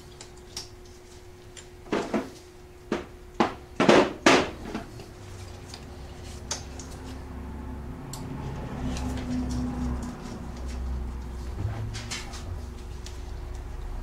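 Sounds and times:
rustling and scraping handling noises: 8.8s - 13.8s.

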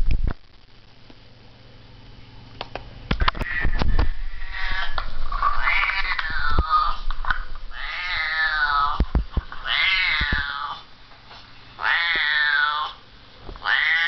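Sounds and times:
cat meows through speakers: 3.2s - 7.0s, 9.6s - 10.8s, 11.8s - 13.0s, 13.6s - 14.0s.

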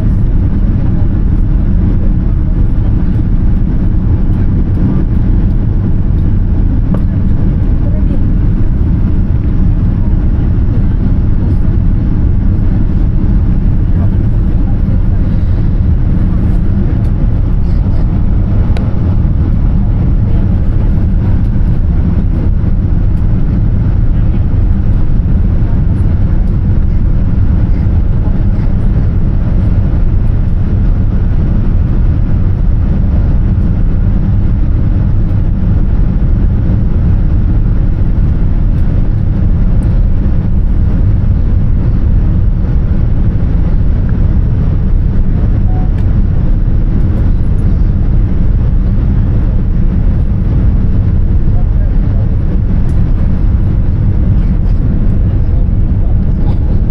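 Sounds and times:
aircraft cabin rumble: 0.0s - 56.9s.

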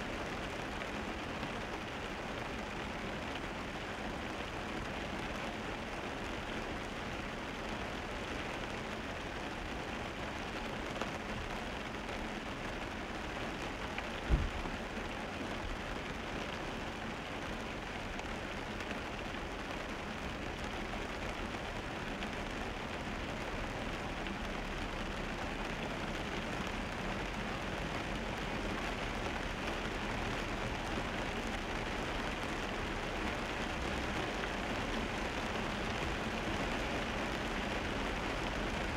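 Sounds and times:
rain: 0.0s - 38.9s
car tyres hissing on wet road: 0.1s - 38.9s
low thump: 14.3s - 14.6s.

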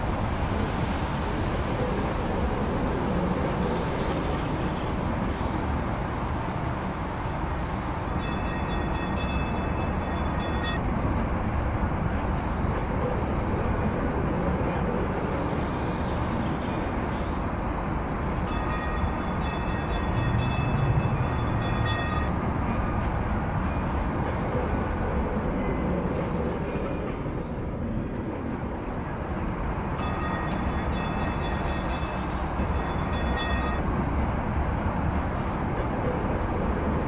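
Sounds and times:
streetcar wheels rumbling on track: 0.0s - 37.0s.

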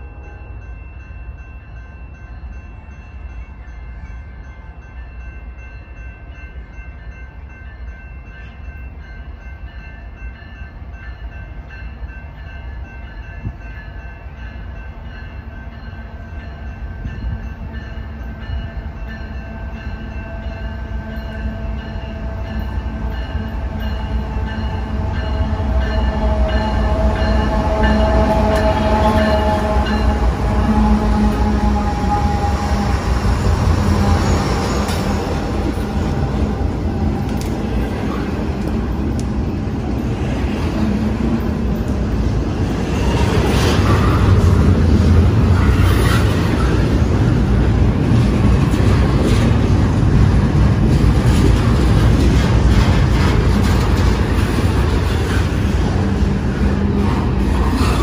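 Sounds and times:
rail noise: 0.0s - 58.0s
diesel locomotive engine rumble: 8.3s - 58.0s
train horn: 19.5s - 36.3s.

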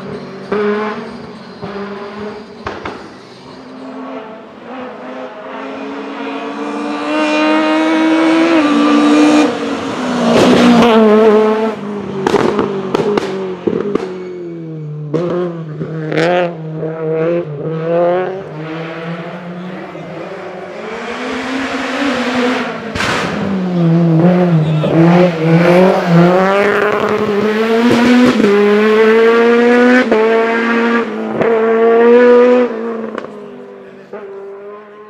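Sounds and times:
racing car engine revving: 0.0s - 35.0s.

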